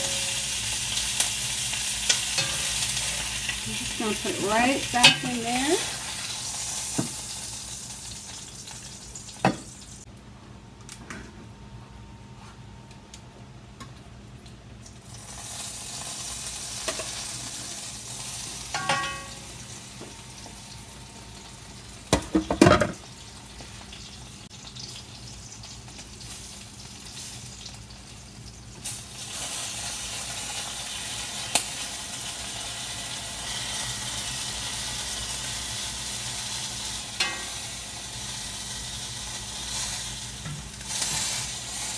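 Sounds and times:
chicken sizzling in hot oil: 0.0 - 10.1, 14.8 - 41.9
tongs clinking against pan: 2.1 - 3.2, 4.9 - 5.4, 18.7 - 19.4, 37.2 - 37.7.

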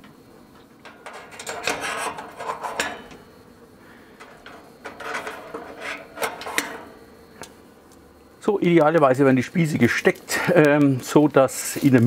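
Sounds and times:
metal skewers scraping and clicking: 0.5 - 3.3, 4.2 - 7.6.

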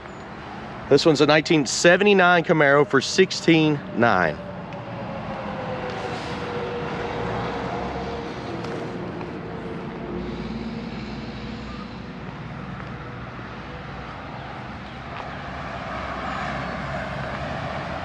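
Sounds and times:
vehicle engine running: 5.3 - 14.2.

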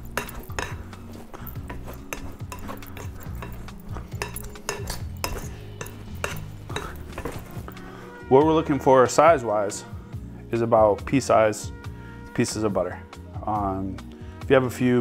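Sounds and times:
pastry cutter clinking on bowl: 0.0 - 7.7.

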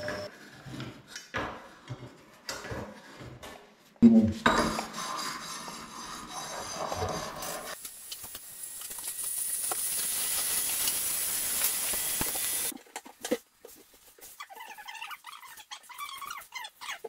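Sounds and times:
heat gun hissing: 7.7 - 12.7.

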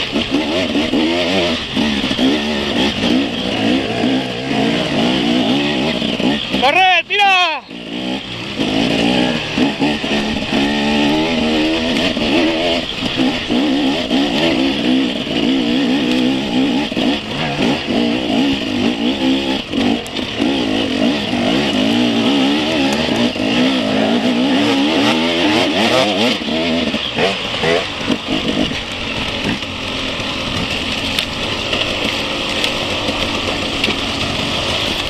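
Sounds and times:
motorcycle engine revving: 0.0 - 35.0.

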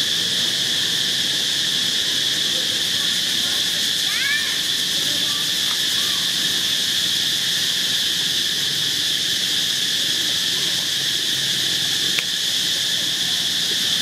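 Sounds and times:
insect chorus drone: 0.0 - 14.0.

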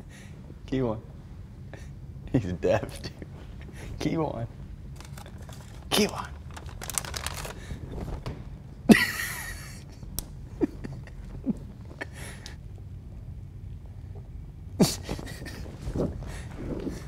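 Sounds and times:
person stifled laughter: 8.9 - 12.6, 14.8 - 15.8.

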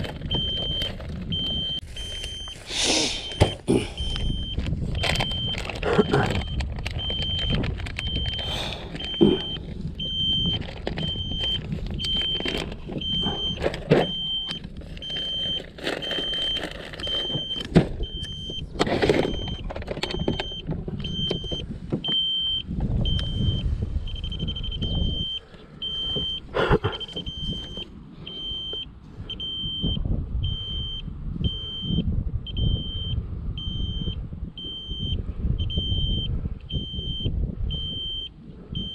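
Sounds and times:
wind buffeting microphone: 0.0 - 38.9
plastic tackle box clattering: 10.5 - 18.0, 18.8 - 21.6.

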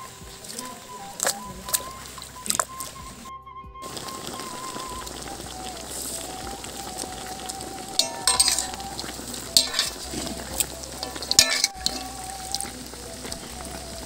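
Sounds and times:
chicken sizzling in a wok: 3.9 - 14.0
spatula scraping wok: 8.0 - 12.7.

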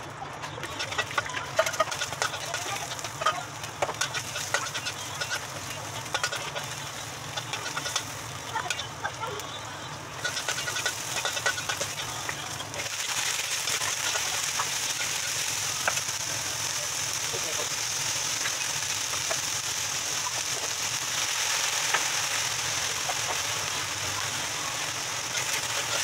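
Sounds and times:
garlic and onion sizzling in oil: 0.0 - 26.0
metal spatula scraping a wok: 0.6 - 9.0, 10.2 - 12.0.

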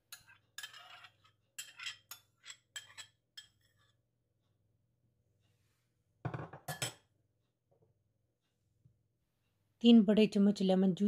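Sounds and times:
spoon scraping a glass bowl: 0.0 - 4.0.

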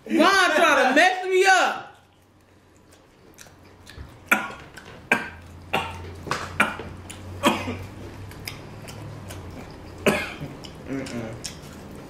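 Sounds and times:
person coughing: 6.6 - 7.9, 10.0 - 11.2.

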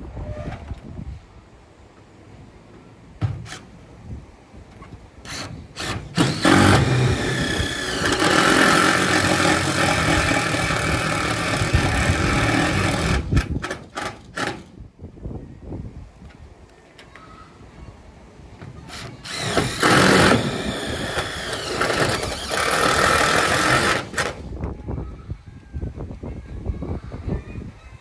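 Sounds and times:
power drill driving screw into metal: 5.2 - 14.7, 18.9 - 24.4.

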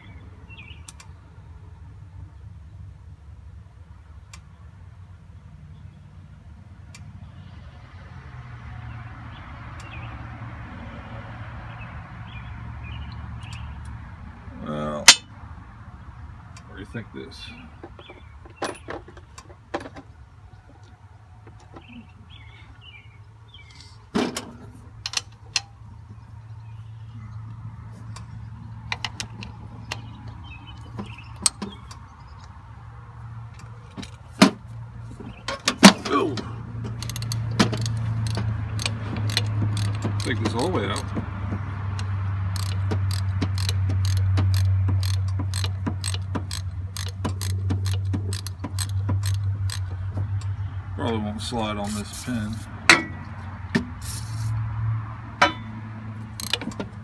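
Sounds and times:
wrench clicking on metal bolts: 15.1 - 15.3, 25.0 - 25.8, 36.8 - 41.2, 41.9 - 50.6, 55.4 - 57.0.

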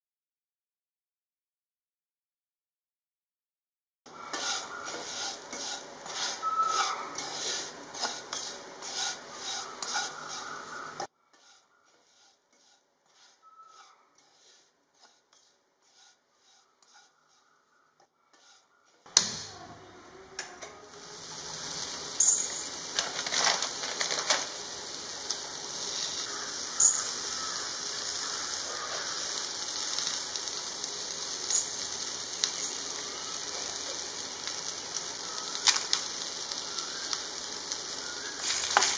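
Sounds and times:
food sizzling in pan: 4.2 - 11.6, 20.8 - 38.9
spoon scraping pan: 4.2 - 17.6, 18.3 - 18.9, 25.3 - 34.0, 38.4 - 38.9
spoon clinking: 22.2 - 22.8.

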